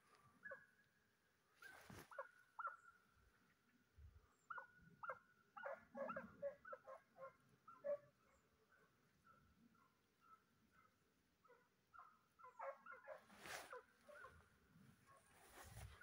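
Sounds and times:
dog barking faintly: 0:10.3 - 0:16.0.

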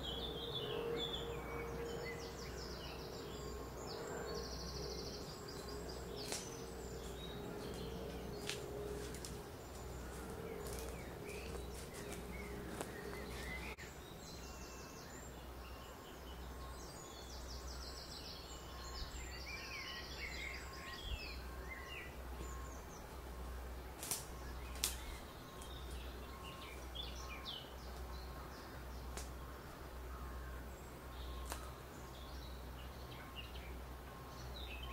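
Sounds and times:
steady low rumble: 0:00.0 - 0:34.8
birds chirping and trilling: 0:00.0 - 0:34.9.

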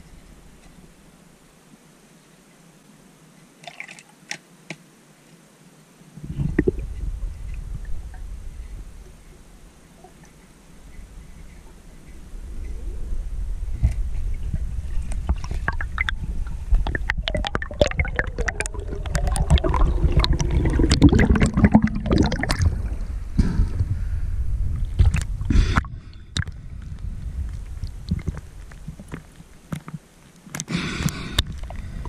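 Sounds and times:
muffled underwater handling noise: 0:06.2 - 0:24.1.

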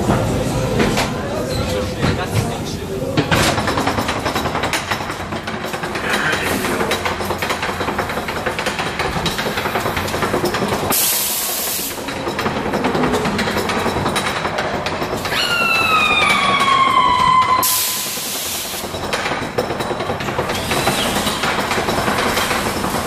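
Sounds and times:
ride car rattling along track: 0:00.0 - 0:23.0
hiss: 0:10.9 - 0:12.0, 0:17.6 - 0:18.9.

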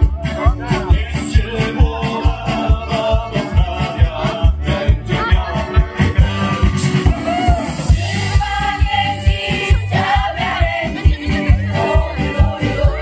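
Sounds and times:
steady drum beat: 0:00.0 - 0:13.0
group singing in unison: 0:00.8 - 0:13.0.

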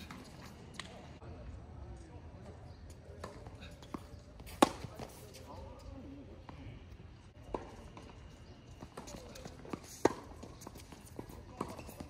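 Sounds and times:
shoes on hard court: 0:03.1 - 0:06.7, 0:07.4 - 0:12.0
tennis racket hitting ball: 0:04.5 - 0:05.1.

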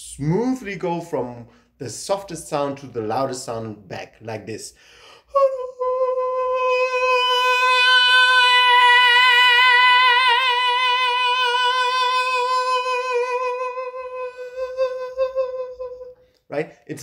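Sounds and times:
man singing long high note: 0:05.3 - 0:16.2.

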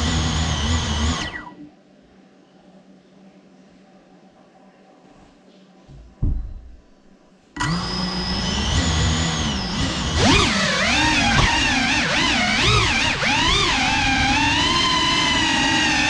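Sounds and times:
short low thump: 0:05.9 - 0:06.9
drone motors whining: 0:07.6 - 0:16.0.

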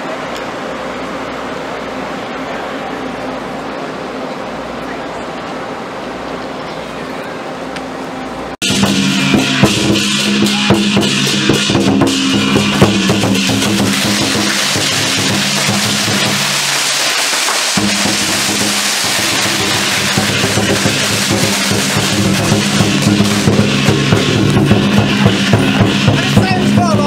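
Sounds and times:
steady held note: 0:07.4 - 0:17.2, 0:17.8 - 0:27.0
large drum beaten hard: 0:08.6 - 0:27.0
procession percussion: 0:08.6 - 0:27.0.

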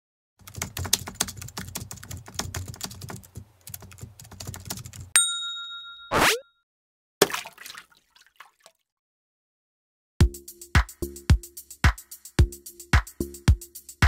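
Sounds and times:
typewriter bell ding: 0:05.2 - 0:06.2.

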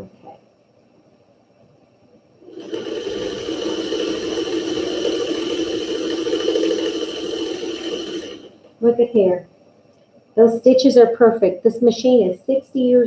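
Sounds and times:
sewing machine running: 0:02.4 - 0:08.8.

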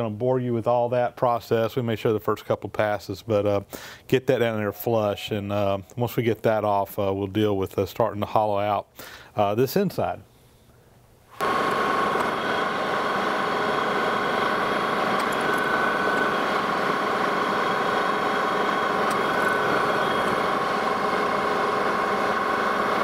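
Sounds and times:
faint steady whine: 0:08.6 - 0:23.0
metal lathe humming: 0:11.4 - 0:23.0.

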